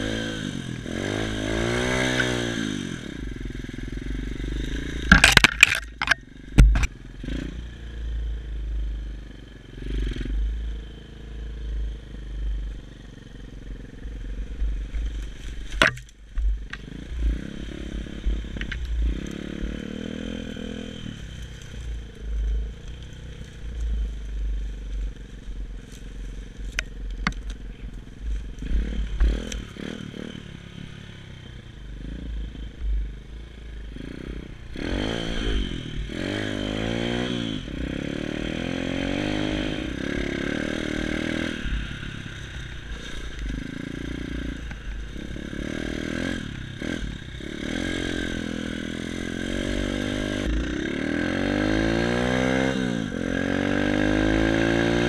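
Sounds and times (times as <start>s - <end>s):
motorbike engine revving: 0.0s - 55.0s
bike knocking and rattling: 3.3s - 7.4s, 12.4s - 30.3s.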